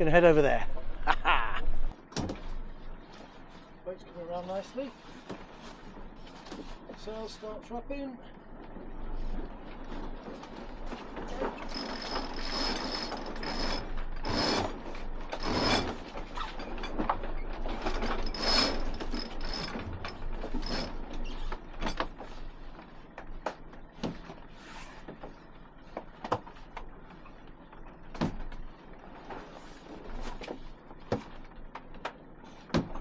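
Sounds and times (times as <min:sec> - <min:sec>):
winch ratcheting: 0:09.8 - 0:22.2.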